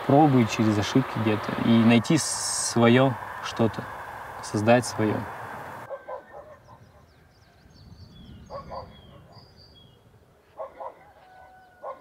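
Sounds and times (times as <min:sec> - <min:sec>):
dog barking: 0:05.9 - 0:07.1, 0:08.5 - 0:09.4, 0:10.6 - 0:12.0
small birds chirping: 0:06.1 - 0:11.0.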